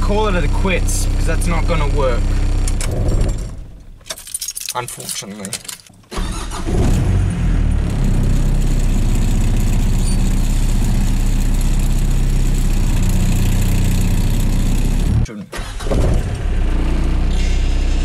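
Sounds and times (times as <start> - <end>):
car engine idling: 7.2 - 17.1.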